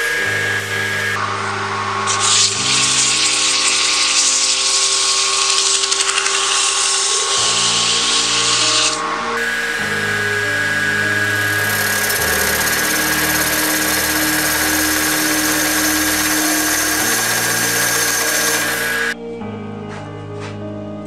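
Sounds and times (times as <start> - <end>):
lathe humming and whining: 0.0 - 19.2
wood being cut on lathe: 0.0 - 19.2.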